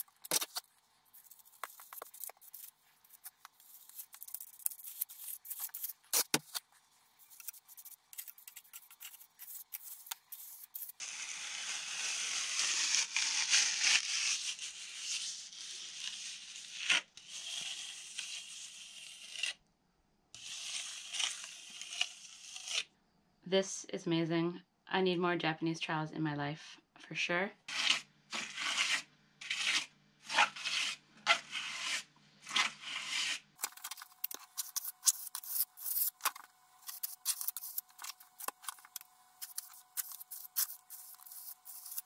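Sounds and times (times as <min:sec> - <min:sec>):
trowel scraping wet plaster: 0:00.0 - 0:06.6, 0:07.2 - 0:13.0, 0:20.4 - 0:22.8, 0:27.7 - 0:42.0.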